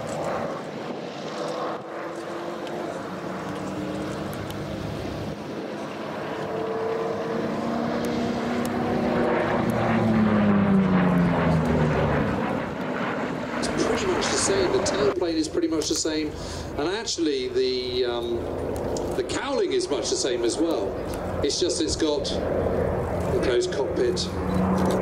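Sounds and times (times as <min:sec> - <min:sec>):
propeller plane flying past: 0:00.0 - 0:25.0.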